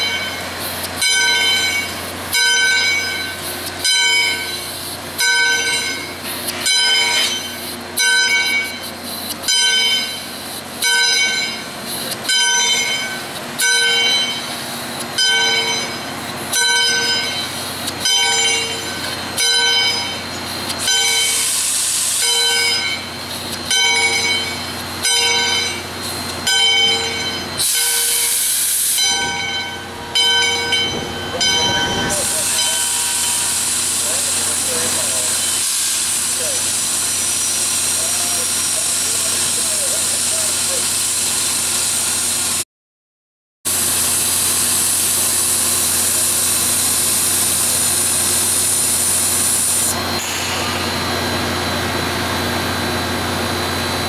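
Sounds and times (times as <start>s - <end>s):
locomotive bell ringing: 0.0s - 40.8s
steam hissing: 10.1s - 42.6s, 43.7s - 54.0s.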